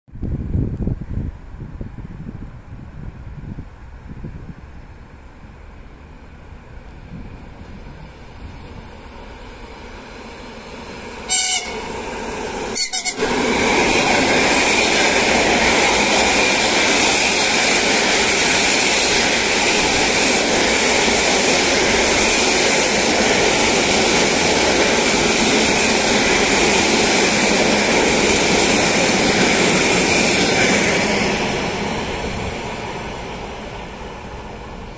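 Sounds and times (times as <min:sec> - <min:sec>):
train passing close by: 0:01.2 - 0:34.9
train horn: 0:11.2 - 0:12.0, 0:12.7 - 0:13.4
short horn toots: 0:11.3 - 0:11.9, 0:12.8 - 0:13.3.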